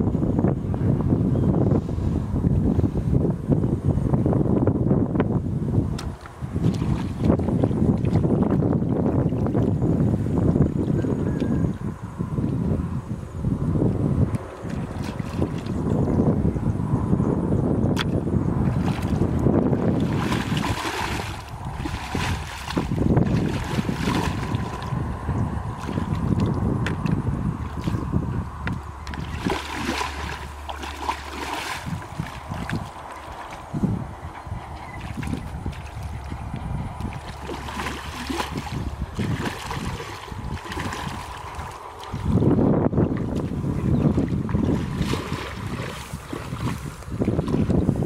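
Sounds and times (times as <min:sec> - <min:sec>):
wind buffeting microphone: 0:00.0 - 0:48.0
water sloshing and splashing: 0:06.0 - 0:10.4, 0:14.3 - 0:16.0, 0:17.9 - 0:48.0.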